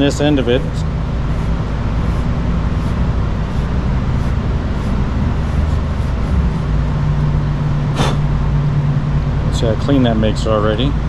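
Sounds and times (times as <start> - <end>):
steady low hum: 0.0 - 11.0
scouring pad scratching metal: 1.3 - 6.7.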